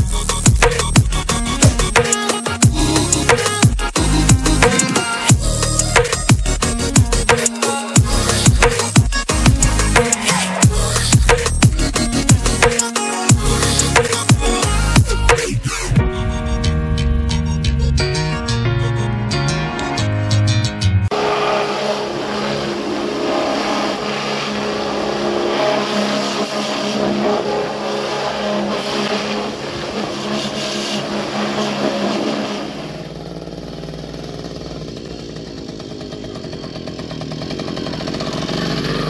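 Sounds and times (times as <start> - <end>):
moped engine running: 0.0 - 15.3, 21.1 - 39.0
water jet hissing: 21.1 - 33.3
pressure washer running: 21.1 - 39.0.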